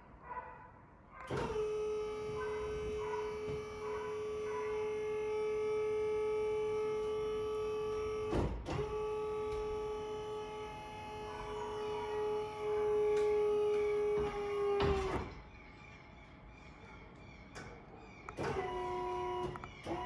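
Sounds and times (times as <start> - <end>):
hydraulic pump whining: 1.3 - 15.5, 18.2 - 20.0.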